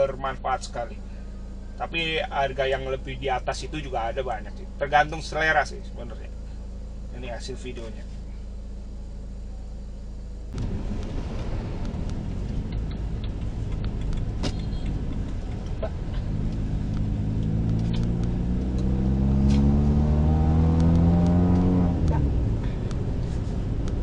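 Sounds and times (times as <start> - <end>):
engine accelerating: 0.0 - 24.0
low engine hum: 0.0 - 24.0
road and traffic noise: 0.0 - 24.0
light ticks: 11.0 - 15.8, 20.8 - 22.2.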